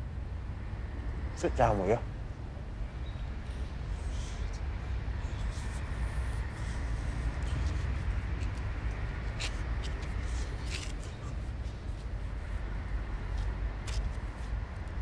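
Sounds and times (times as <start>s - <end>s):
low city rumble: 0.0s - 15.0s
faint rustles and ticks: 3.3s - 15.0s.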